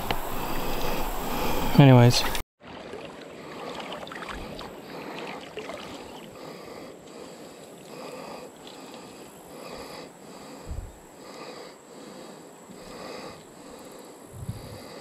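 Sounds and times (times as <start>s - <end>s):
water lapping around canoe: 2.2s - 14.0s.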